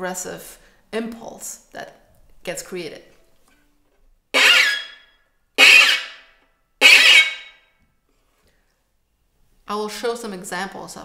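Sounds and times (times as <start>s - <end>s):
violin harmonic glissando bursts: 4.4s - 5.0s, 5.6s - 6.2s, 6.8s - 7.5s.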